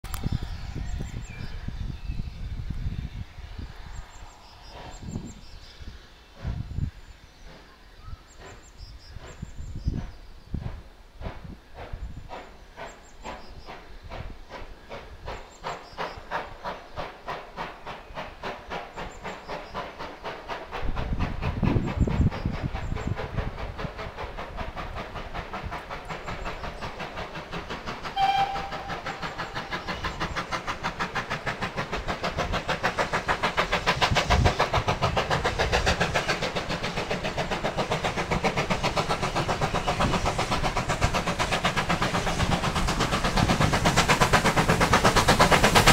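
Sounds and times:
steam locomotive exhaust beats: 0.0 - 45.9
steam whistle toot: 28.1 - 29.2.

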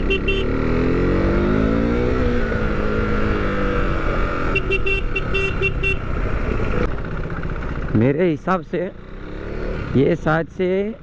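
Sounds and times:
short horn beeps: 0.0 - 0.5, 4.6 - 6.0
motorcycle engine accelerating: 0.0 - 10.4
road and wind noise: 0.0 - 11.0.

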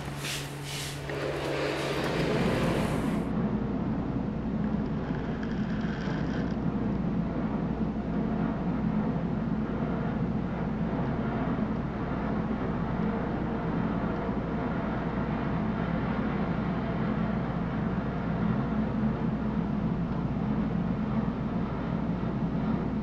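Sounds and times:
vehicle engine rumble from cab: 0.0 - 3.3.

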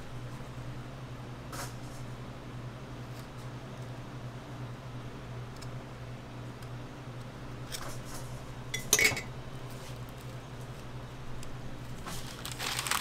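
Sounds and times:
paper wrapper rustling: 12.0 - 13.0.

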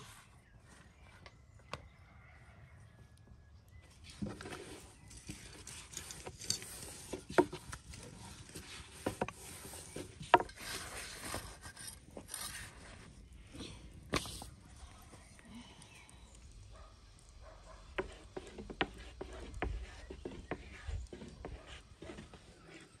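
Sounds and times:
rolling pin rubbing on dough: 17.9 - 23.0.

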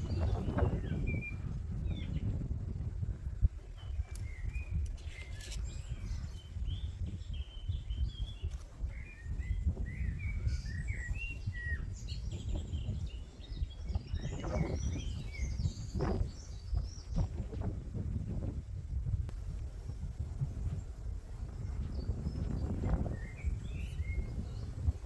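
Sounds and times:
small birds chirping: 0.0 - 18.5, 19.5 - 25.0
brief rustles: 4.0 - 5.9.

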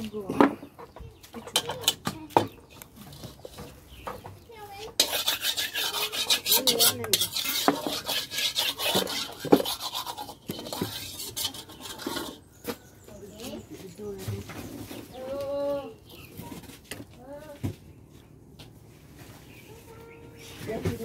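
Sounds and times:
fast scraping on hard surface: 3.0 - 12.8.

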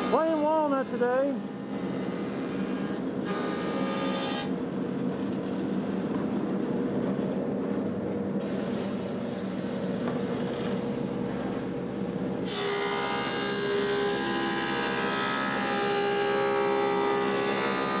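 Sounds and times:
planer cutting wood whining: 0.0 - 4.5, 12.4 - 18.0
wood planer running: 0.0 - 4.5, 12.4 - 18.0.

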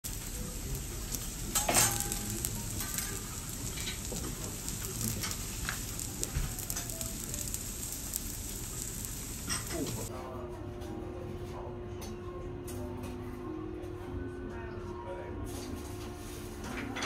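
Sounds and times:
griddle sizzling: 0.0 - 10.1
metal utensils clinking: 1.4 - 7.7, 8.5 - 10.1.

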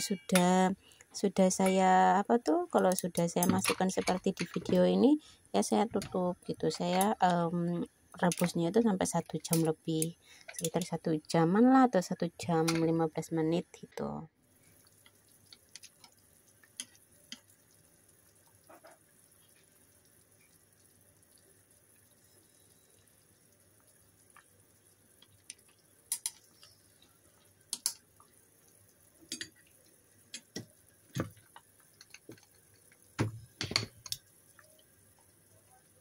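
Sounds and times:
meat simmering in water: 14.4 - 36.0.

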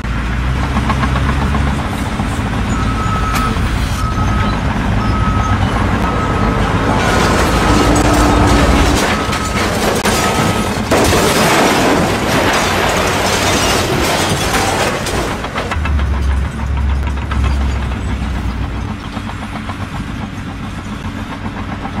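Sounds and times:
concrete structure collapsing: 6.9 - 18.9
falling debris knocks: 7.0 - 17.7
deep rumble: 15.7 - 20.2.

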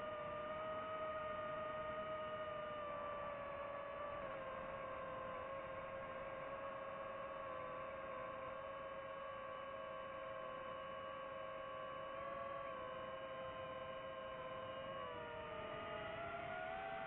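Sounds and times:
quadcopter motors whining: 12.1 - 17.0.

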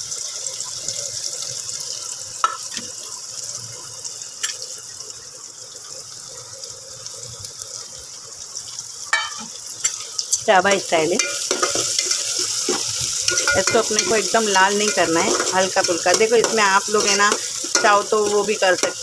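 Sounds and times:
onion sizzling in hot oil: 0.0 - 19.0
metal plate clinks: 13.3 - 14.3.

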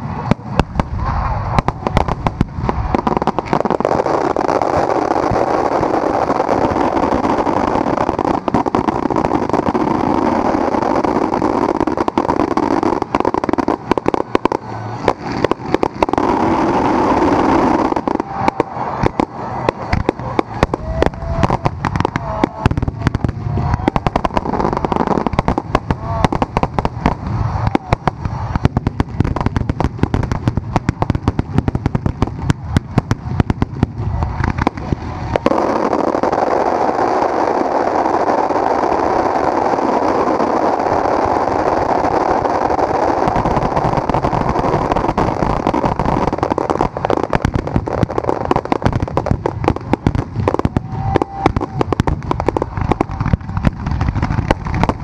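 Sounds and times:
fireworks cracks and bangs: 0.0 - 55.0
fireworks rushing roar: 0.0 - 55.0.

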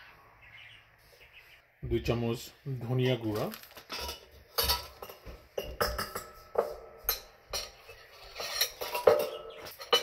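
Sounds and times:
metal spoon clinking on ceramic bowl: 3.9 - 10.0.

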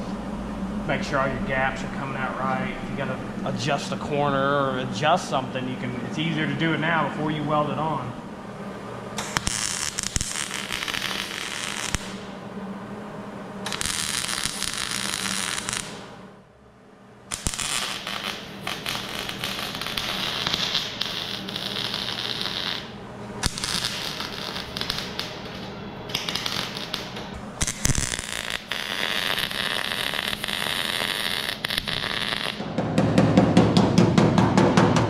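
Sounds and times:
welder crackling: 9.1 - 12.4, 13.6 - 16.2, 17.3 - 32.7.

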